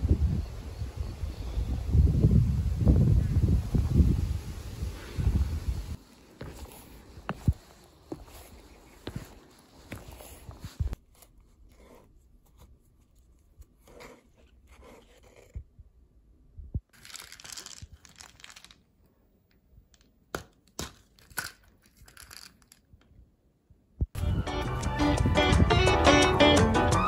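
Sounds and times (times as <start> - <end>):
footsteps on dirt path: 6.0 - 11.0
rustling: 6.0 - 15.6.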